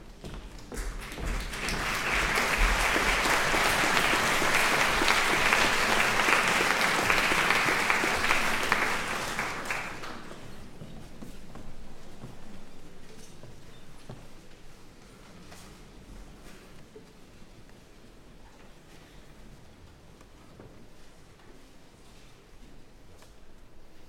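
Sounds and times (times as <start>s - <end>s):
audience applauding: 0.8s - 10.6s.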